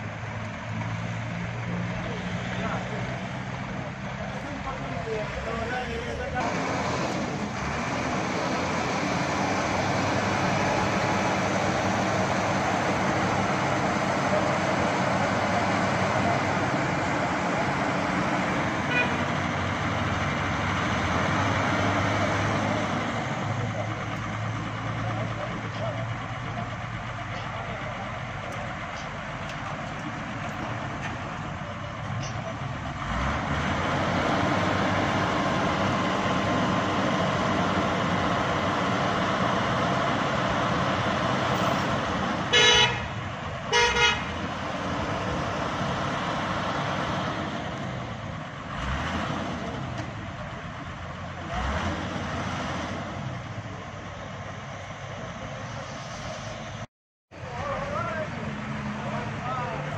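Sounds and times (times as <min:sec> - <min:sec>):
road noise: 0:00.0 - 0:59.9
vehicle engines running: 0:00.0 - 0:59.9
vehicle horn honks: 0:18.9 - 0:19.3, 0:42.5 - 0:44.3.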